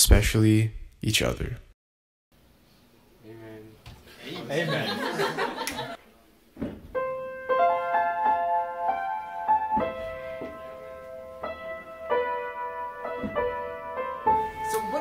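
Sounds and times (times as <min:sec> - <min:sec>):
piano melody with chords: 0:06.9 - 0:15.0.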